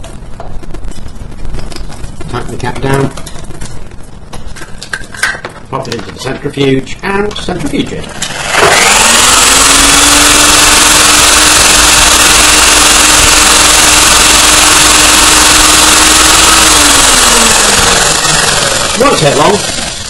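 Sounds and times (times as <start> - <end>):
centrifuge motor whine: 8.1 - 20.0.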